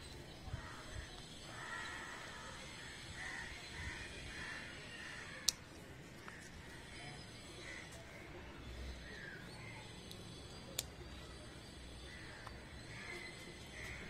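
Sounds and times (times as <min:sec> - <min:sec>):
crows cawing: 0:01.5 - 0:05.5, 0:12.1 - 0:14.0.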